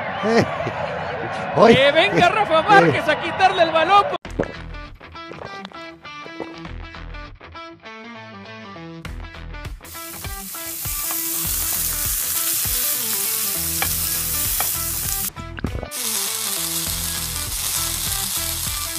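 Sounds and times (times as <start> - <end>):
food sizzling on a grill: 9.9 - 15.3, 15.9 - 18.9.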